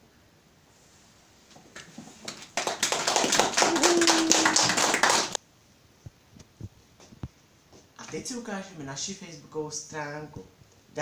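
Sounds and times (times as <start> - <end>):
audience clapping: 2.2 - 5.4.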